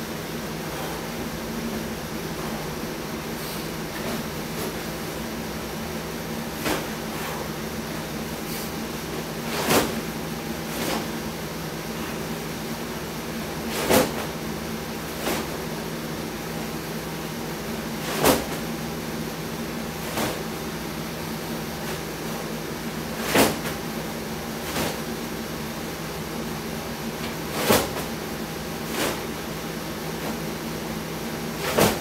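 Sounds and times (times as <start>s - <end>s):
ventilation hum: 0.0s - 32.0s
sandbag thumps: 6.4s - 7.5s, 8.4s - 11.3s, 13.6s - 14.4s, 18.0s - 18.8s, 19.9s - 20.6s, 23.2s - 23.8s, 27.2s - 28.2s, 28.8s - 29.4s, 31.5s - 32.0s.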